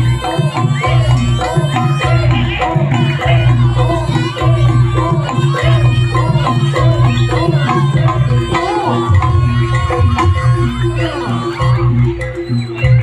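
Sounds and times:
hand drum patterns: 0.0 - 13.0
repeating pitched melody: 0.0 - 13.0.

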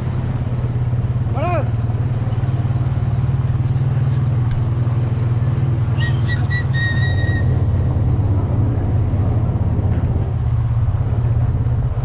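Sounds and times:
quad bike engine running: 0.0 - 12.0
high whistle notes: 6.0 - 7.6.

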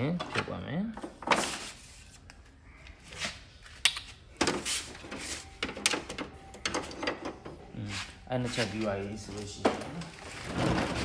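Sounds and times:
parts scraping and rattling: 3.6 - 11.0.

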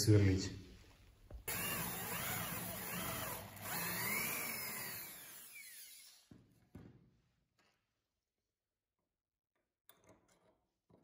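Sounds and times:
electric drill drilling metal: 1.5 - 6.4.

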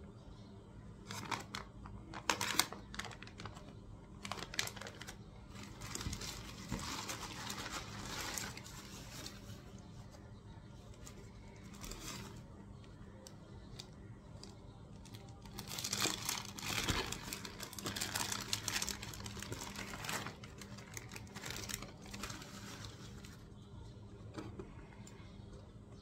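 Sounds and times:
plastic packaging crinkling: 1.1 - 9.8, 11.0 - 12.5, 13.7 - 23.6.

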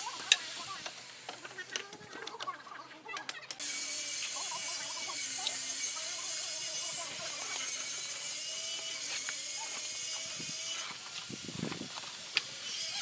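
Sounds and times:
high-pitched buzzing drone: 3.6 - 11.0
trowel scraping mortar on tiles: 3.6 - 11.3.

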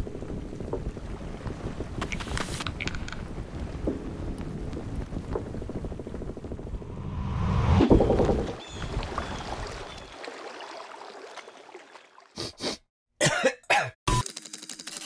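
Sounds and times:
low rushing whoosh: 6.5 - 8.7
cartoon short coughs: 12.4 - 14.0.

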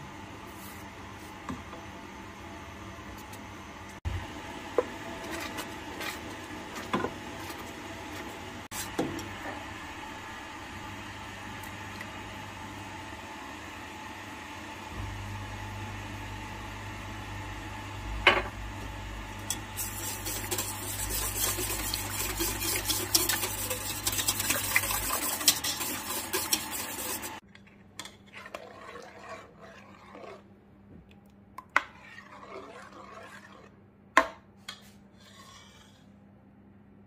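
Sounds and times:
whisk beating in metal saucepan: 19.4 - 27.4, 28.0 - 30.4, 31.8 - 33.7.

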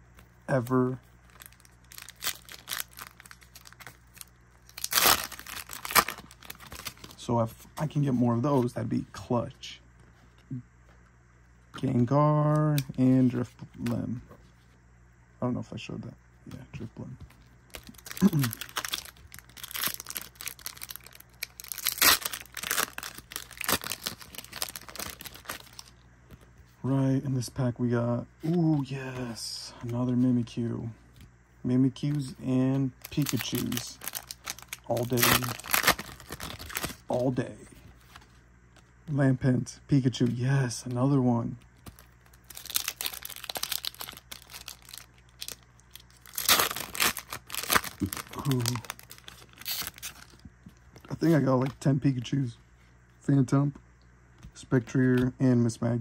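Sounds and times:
foil wrapper tearing and crinkling: 1.3 - 7.2, 17.7 - 25.9, 33.0 - 37.2, 41.8 - 50.4.

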